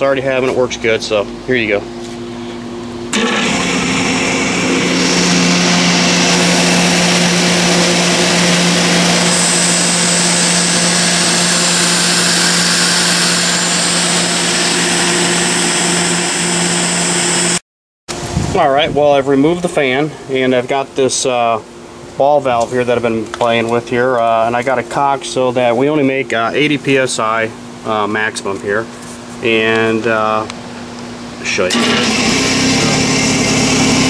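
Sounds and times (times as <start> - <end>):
air compressor running: 1.4 - 17.6, 31.6 - 34.0.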